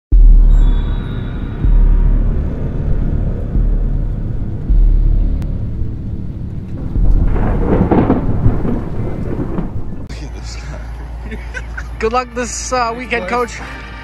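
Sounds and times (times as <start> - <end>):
thunder rumbling: 0.1 - 10.1
crackling thunder burst: 0.2 - 10.1.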